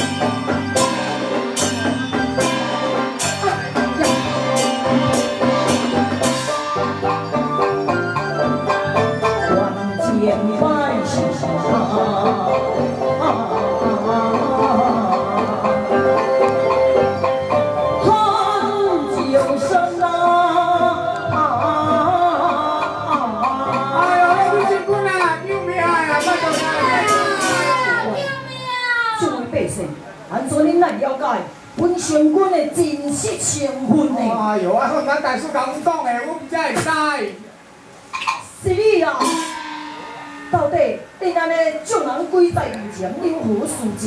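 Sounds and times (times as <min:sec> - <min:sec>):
sharp percussion strikes: 0:00.0 - 0:09.9, 0:21.2 - 0:28.2, 0:38.1 - 0:42.7
held melodic notes: 0:00.0 - 0:28.7, 0:38.2 - 0:44.0
instrumental accompaniment: 0:00.0 - 0:36.5, 0:37.6 - 0:44.0
person singing opera aria: 0:09.5 - 0:16.7, 0:18.0 - 0:28.3.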